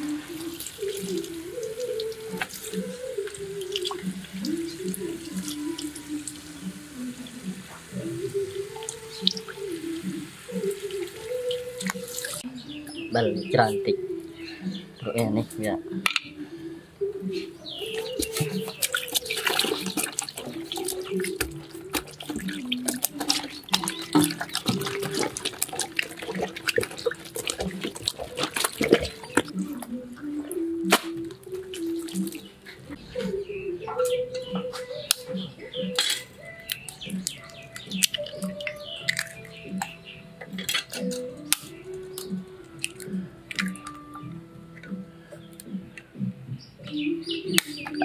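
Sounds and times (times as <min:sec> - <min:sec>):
drips and splashes: 0:00.0 - 0:12.5, 0:17.6 - 0:33.0, 0:35.1 - 0:45.0
wet slaps of kneading: 0:30.9 - 0:32.5.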